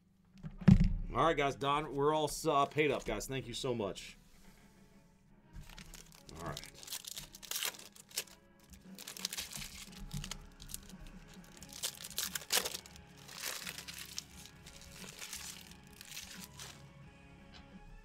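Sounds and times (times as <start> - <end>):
music playing: 2.4 - 18.0
plastic wrapping crinkling and tearing: 5.6 - 16.8.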